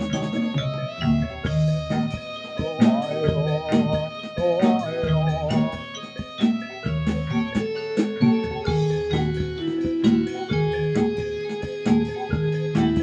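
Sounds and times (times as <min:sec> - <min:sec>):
repeating low bass figure: 0:00.0 - 0:06.0
drum strokes: 0:00.0 - 0:13.0
long held melody notes: 0:00.0 - 0:13.0.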